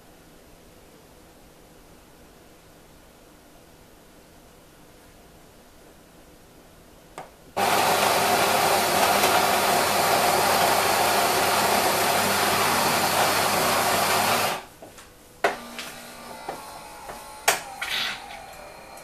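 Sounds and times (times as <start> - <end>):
coffee grinder motor whirring: 7.6 - 14.7, 15.5 - 19.0.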